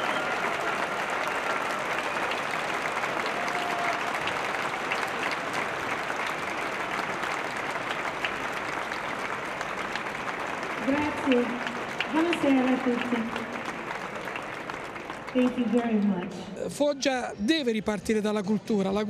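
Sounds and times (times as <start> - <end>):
audience applauding: 0.0 - 17.2.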